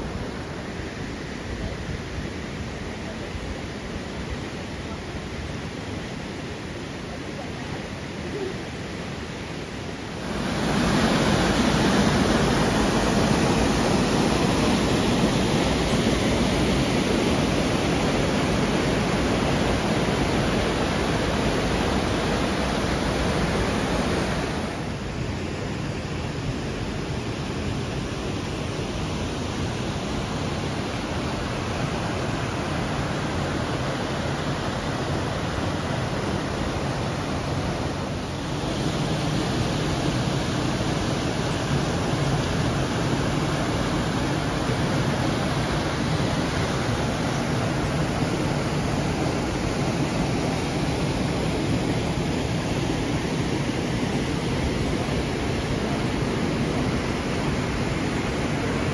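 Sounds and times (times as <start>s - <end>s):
river rushing over rapids: 0.0s - 58.9s.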